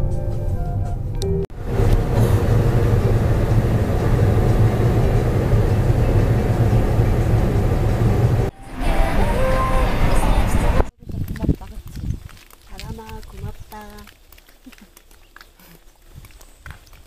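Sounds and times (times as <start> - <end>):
car interior road noise: 1.5 - 10.9.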